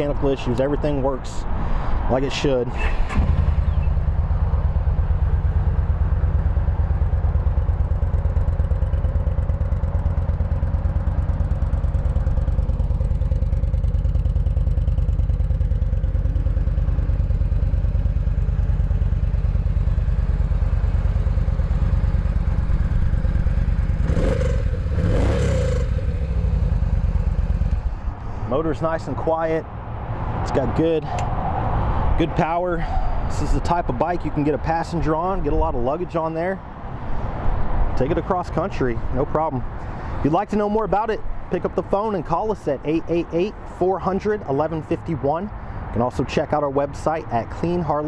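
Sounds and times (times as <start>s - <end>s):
motorcycle engine idling: 3.2s - 28.4s.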